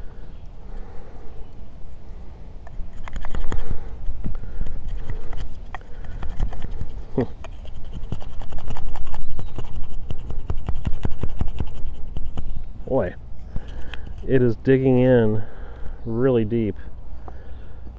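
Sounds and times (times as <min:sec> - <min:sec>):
knife carving wood: 0:02.6 - 0:12.6, 0:13.4 - 0:14.6.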